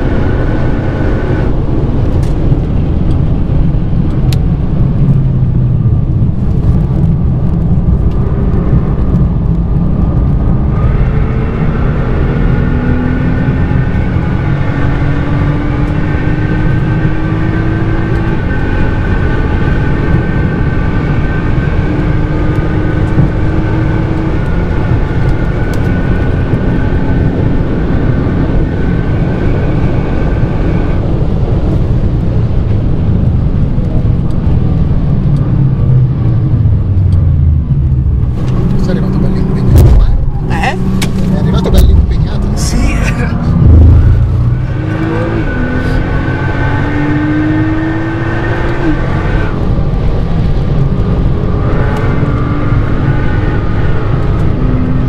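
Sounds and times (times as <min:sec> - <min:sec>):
car engine drone in cabin: 0:00.0 - 0:55.0
high whine: 0:35.3 - 0:49.8.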